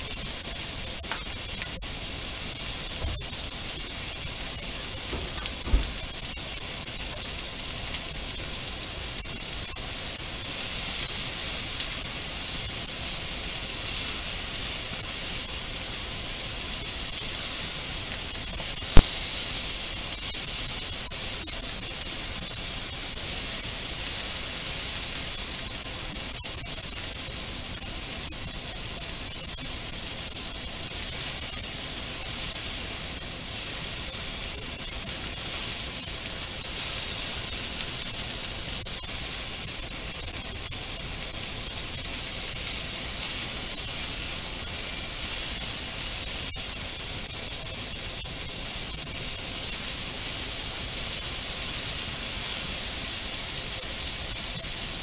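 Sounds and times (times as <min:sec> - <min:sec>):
food sizzling in a frying pan: 0:00.0 - 0:55.0.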